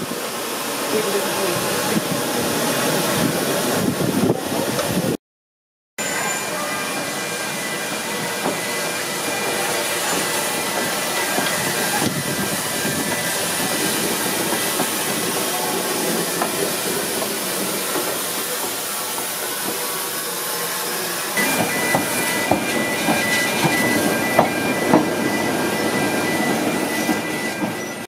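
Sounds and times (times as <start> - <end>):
steam locomotive hissing: 0.0 - 5.2, 6.0 - 28.0
faint high squeal: 6.0 - 13.4, 19.5 - 28.0.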